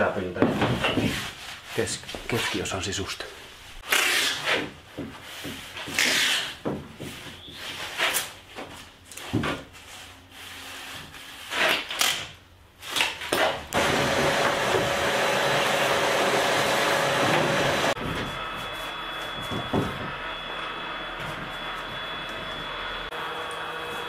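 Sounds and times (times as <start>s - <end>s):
rubbing and scraping on wood: 0.3s - 3.0s, 3.7s - 11.9s
shop vacuum running: 13.7s - 24.0s.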